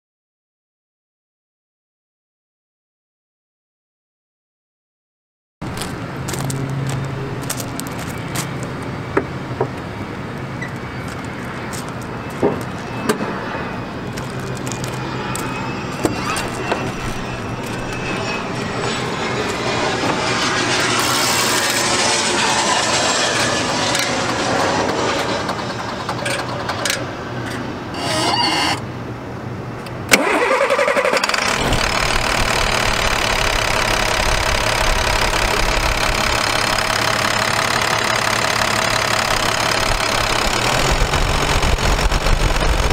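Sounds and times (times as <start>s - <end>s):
diesel engine starting and idling: 18.9s - 28.9s, 30.0s - 42.9s.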